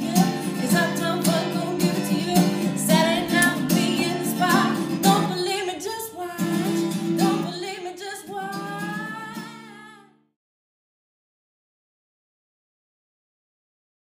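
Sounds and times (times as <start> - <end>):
strummed acoustic guitar: 0.0 - 10.2
woman singing: 0.0 - 10.2.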